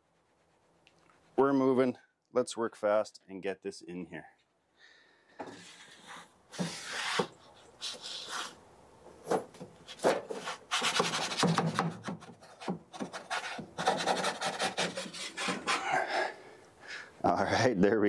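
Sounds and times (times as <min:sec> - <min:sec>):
wooden peel scraping and knocking: 0:09.2 - 0:14.1.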